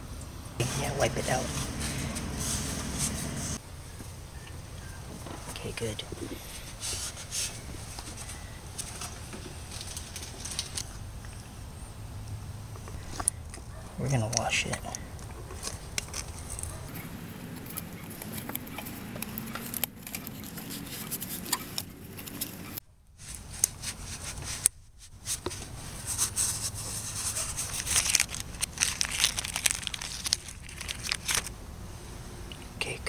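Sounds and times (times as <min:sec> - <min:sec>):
cloth rag wiping metal housing: 0:00.6 - 0:03.6
plastic bag crinkling: 0:27.2 - 0:31.5.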